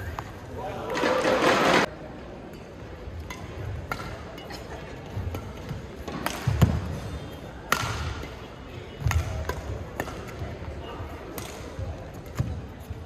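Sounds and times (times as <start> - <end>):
rackets striking shuttlecock: 2.4 - 4.5, 5.1 - 12.6.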